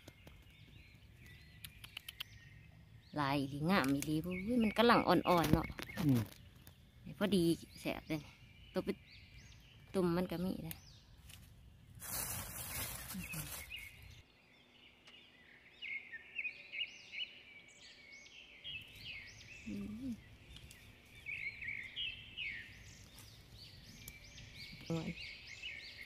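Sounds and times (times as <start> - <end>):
birds chirping: 0.0 - 26.0
plastic bag rustling: 12.0 - 14.2.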